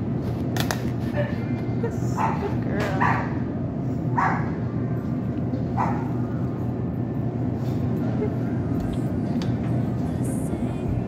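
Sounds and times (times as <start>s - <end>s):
steady low hum: 0.0s - 11.0s
dog barking: 2.2s - 3.4s, 4.2s - 4.6s, 5.8s - 6.2s.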